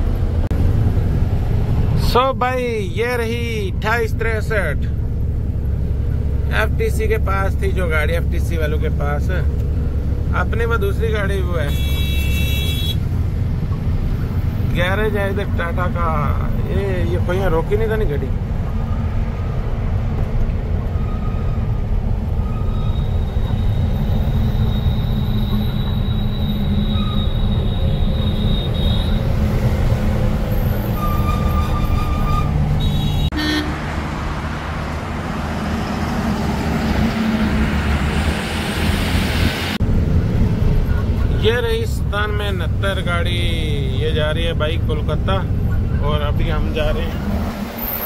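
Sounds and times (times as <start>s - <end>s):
truck engine and road rumble: 0.0s - 48.0s
high horn toots: 11.7s - 13.0s, 22.6s - 29.4s, 30.9s - 33.8s.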